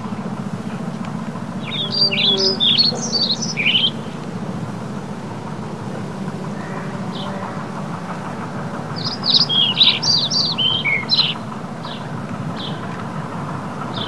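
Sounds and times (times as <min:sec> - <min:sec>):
steady low rumble: 0:00.0 - 0:14.0
small bird chirping: 0:01.6 - 0:04.2, 0:08.9 - 0:12.9.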